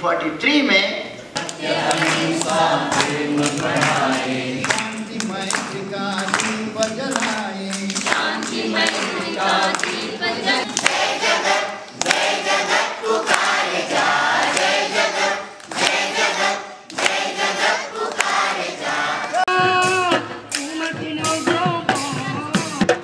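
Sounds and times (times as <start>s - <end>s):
children singing in chorus: 1.4s - 4.8s, 8.0s - 19.4s.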